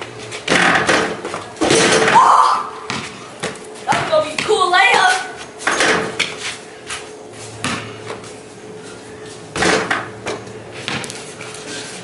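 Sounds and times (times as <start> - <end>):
steady low hum: 0.0 - 12.0
basketball thuds on concrete: 0.4 - 2.2, 2.9 - 4.6, 7.6 - 7.9, 9.5 - 11.2.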